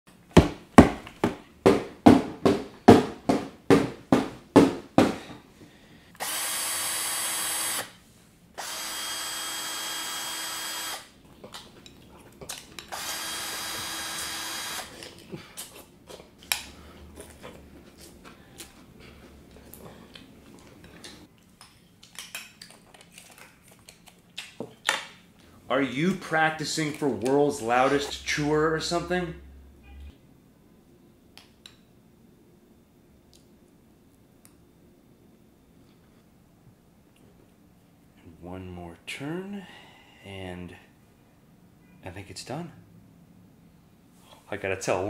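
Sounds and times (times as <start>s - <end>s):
cordless power drill running: 6.2s - 8.0s, 8.6s - 11.1s, 12.9s - 15.0s
loud chewing: 15.0s - 21.2s.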